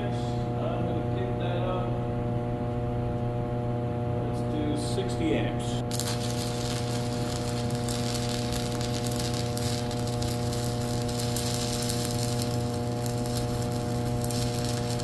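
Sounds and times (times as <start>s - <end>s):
welder low hum: 0.0s - 15.0s
welding arc crackling: 5.8s - 15.0s.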